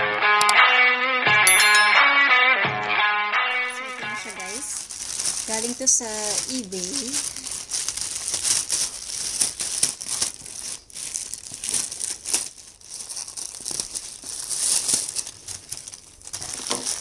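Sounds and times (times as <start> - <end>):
plastic mailer bag crinkling: 3.6 - 17.0.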